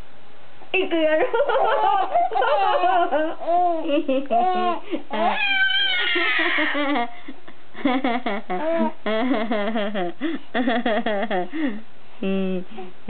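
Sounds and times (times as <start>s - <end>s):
baby squealing: 4.4s - 6.8s.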